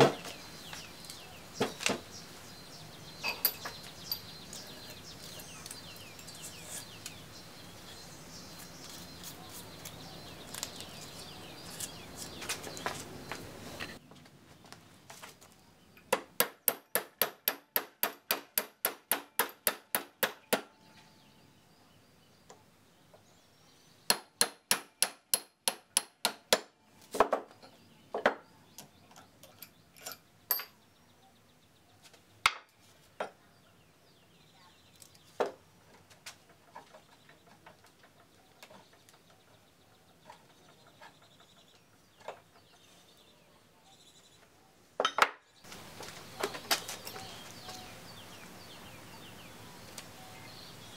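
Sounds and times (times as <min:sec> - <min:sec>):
heavy iron parts clinking: 0:03.2 - 0:04.3, 0:29.4 - 0:30.8
hammer on metal shaft: 0:24.1 - 0:26.7.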